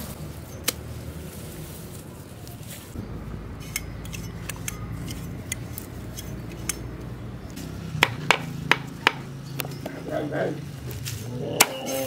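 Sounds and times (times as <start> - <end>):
cleaver cutting lemongrass: 3.6 - 6.9.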